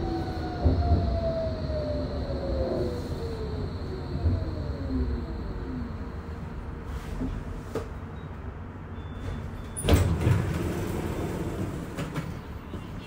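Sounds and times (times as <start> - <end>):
tram drive running quietly: 0.0 - 13.0
sliding doors clunking: 9.4 - 13.0.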